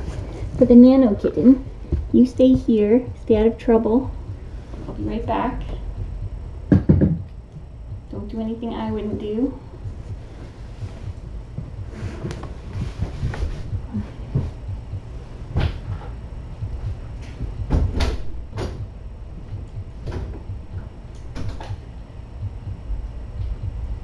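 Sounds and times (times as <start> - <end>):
steady low hum: 0.0 - 24.0
sharp knocks and clicks: 6.7 - 7.7, 15.6 - 18.9.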